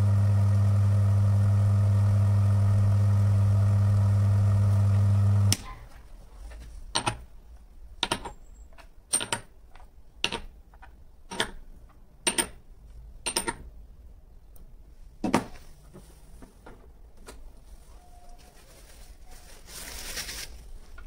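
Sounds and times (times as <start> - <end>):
electric motor hum: 0.0 - 5.6.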